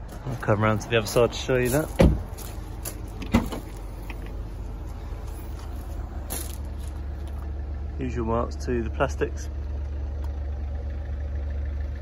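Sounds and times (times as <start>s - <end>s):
low rumble: 0.0s - 12.0s
car door shutting: 1.9s - 2.4s, 3.2s - 4.4s.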